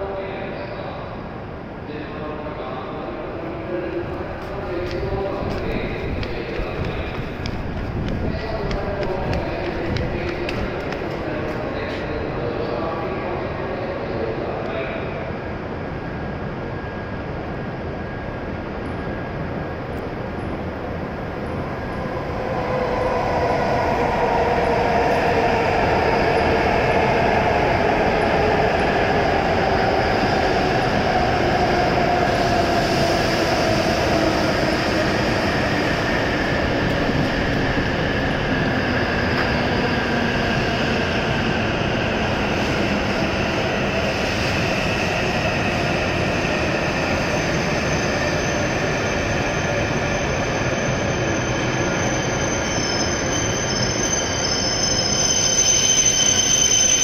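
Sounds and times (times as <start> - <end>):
train rolling noise: 3.4 - 13.2, 15.8 - 57.0
high squeal: 44.1 - 57.0.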